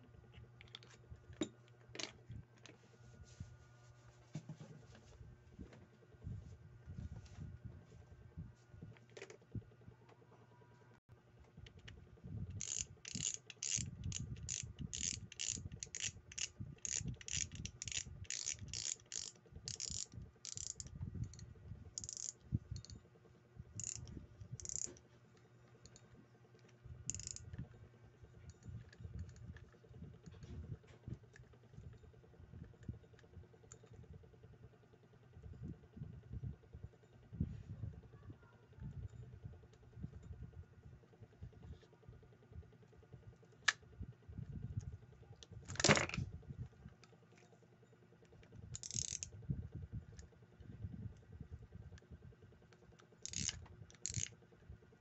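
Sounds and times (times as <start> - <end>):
fishing reel ratchet clicks: 12.5 - 21.4, 22.0 - 23.0, 23.8 - 25.0, 27.1 - 27.5, 48.7 - 49.4, 53.2 - 54.4.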